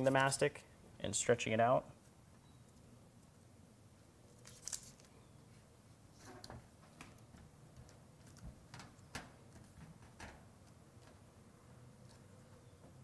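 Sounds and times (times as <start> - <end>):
faint tape clicks and rustles: 6.2 - 11.4, 12.0 - 13.0.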